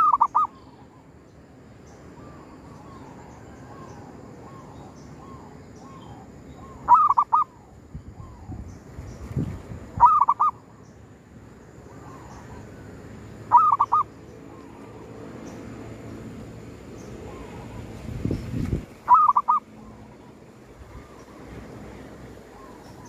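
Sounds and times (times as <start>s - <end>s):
dove cooing: 0.0s - 1.0s, 2.2s - 7.6s, 10.0s - 10.6s, 13.5s - 14.1s, 19.1s - 21.3s.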